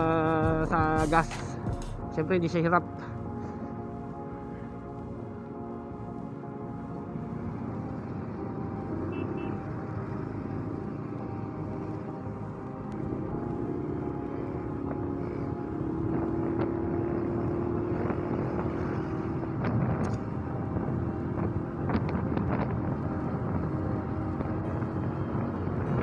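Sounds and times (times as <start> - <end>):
motorcycle engine running: 13.1 - 26.0
wind rushing over microphone: 14.5 - 26.0.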